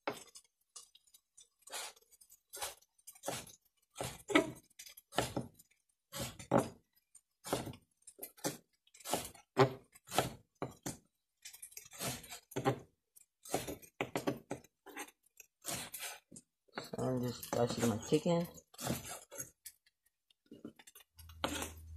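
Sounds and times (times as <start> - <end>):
knife chopping on wooden board: 3.2 - 5.5, 6.1 - 6.8, 7.4 - 7.8, 8.4 - 11.0, 13.5 - 14.6, 18.8 - 19.2.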